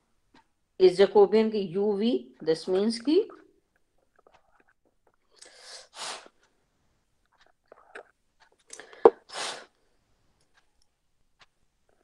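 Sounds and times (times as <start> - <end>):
breath puffs near microphone: 5.4 - 6.5.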